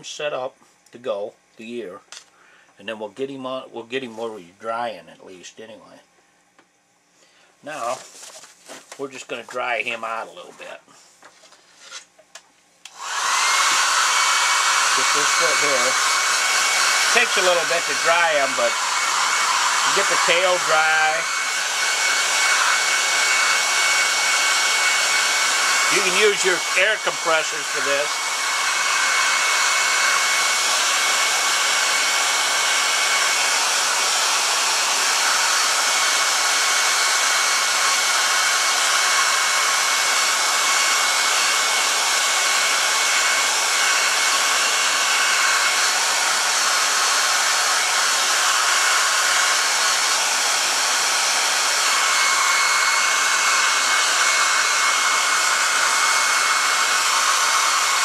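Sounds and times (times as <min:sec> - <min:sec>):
hair dryer blowing with whine: 0:12.8 - 0:58.0.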